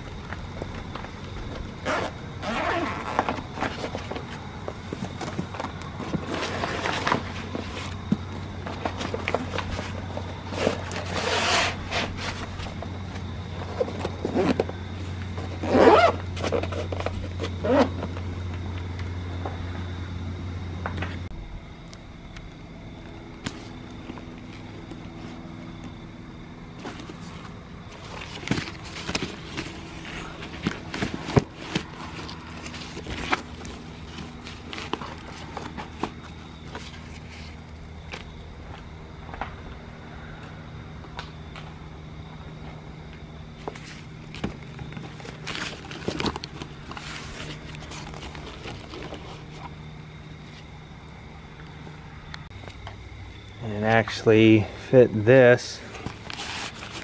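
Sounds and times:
steady low hum: 0.0 - 57.0
zipper rasps: 1.8 - 3.4, 10.6 - 12.2, 15.6 - 18.0
fabric rustling and scraping: 1.9 - 18.0, 43.7 - 49.8, 55.9 - 57.0
books knocking and thudding: 3.2 - 11.1, 26.8 - 37.5, 43.6 - 49.7.

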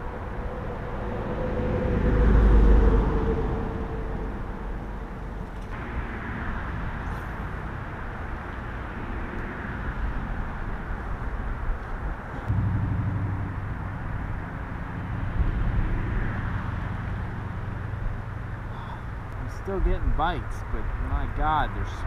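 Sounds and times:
low rumble: 0.0 - 6.0, 12.3 - 19.5.

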